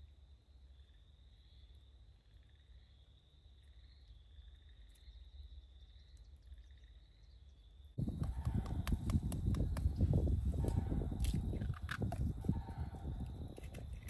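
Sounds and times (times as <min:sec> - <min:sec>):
insect chorus trilling: 0:00.4 - 0:09.2
crunching and clicking: 0:10.7 - 0:14.0.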